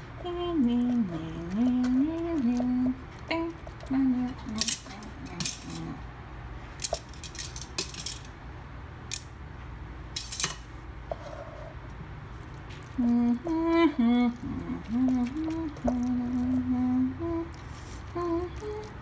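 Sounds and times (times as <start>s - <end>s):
person humming: 0.2s - 6.0s, 13.0s - 19.0s.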